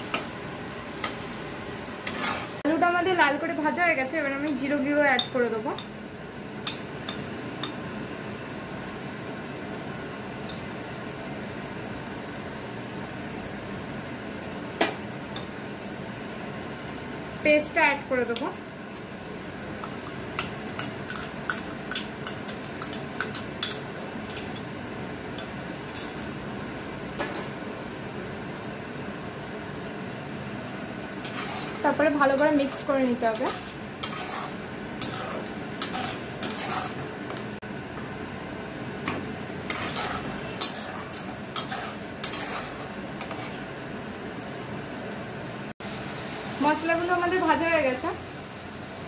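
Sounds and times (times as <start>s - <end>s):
potatoes sizzling in oil: 0.0s - 44.2s, 45.8s - 49.0s
metal spatula scraping a pan: 2.0s - 2.6s, 31.2s - 37.0s, 39.6s - 43.6s.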